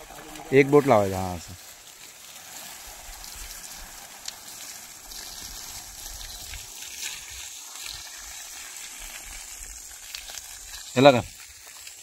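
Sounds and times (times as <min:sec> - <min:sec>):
hose spraying water: 0:00.0 - 0:12.0.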